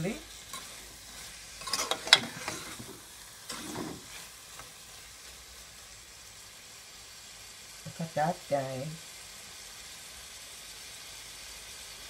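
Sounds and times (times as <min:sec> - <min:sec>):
food sizzling: 0:00.0 - 0:12.0
spoon scraping a metal pot: 0:01.6 - 0:02.9.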